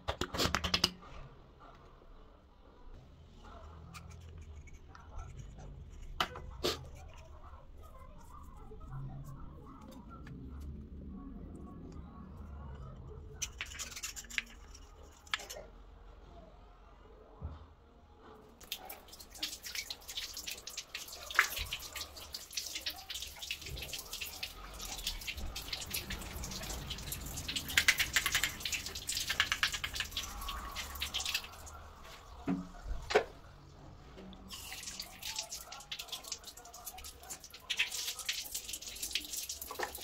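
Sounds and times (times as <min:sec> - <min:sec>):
water running and splashing: 0:18.6 - 0:32.4, 0:34.4 - 0:40.0
fine drips and spatters: 0:18.6 - 0:32.5, 0:34.2 - 0:40.0.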